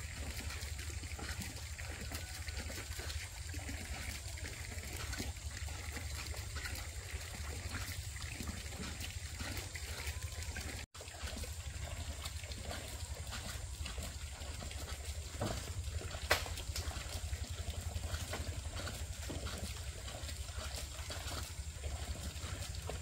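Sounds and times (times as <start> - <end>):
water trickling: 0.0 - 23.0.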